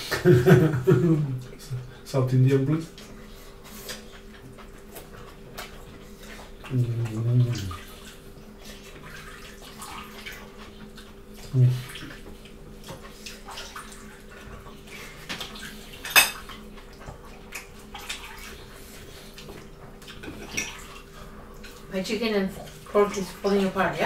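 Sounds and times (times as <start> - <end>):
faint steady hum: 0.0 - 24.0
wet chewing and lip-smacking: 2.9 - 21.9
plates and cutlery clinking: 16.0 - 16.6, 20.2 - 20.9.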